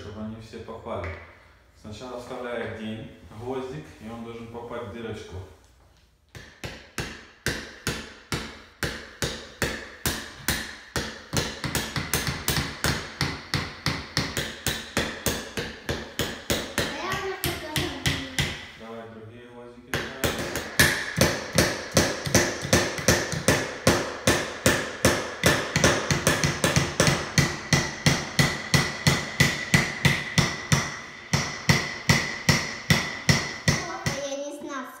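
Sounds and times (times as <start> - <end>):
hammers striking nails into wood: 6.3 - 18.8, 19.9 - 34.3.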